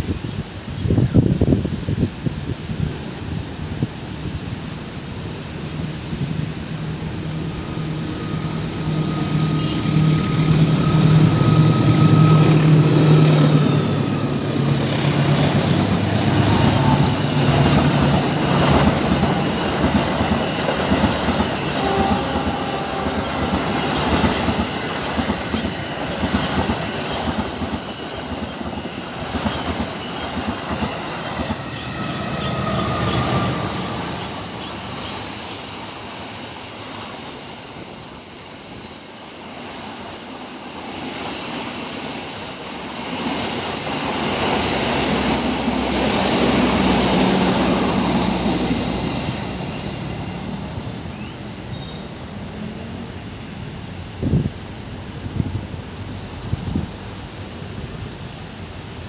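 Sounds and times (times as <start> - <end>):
high wheel squeals: 1.9 - 20.6, 26.8 - 40.3
train wheels clattering on rails: 1.9 - 52.0
locomotive engine humming: 5.4 - 35.8.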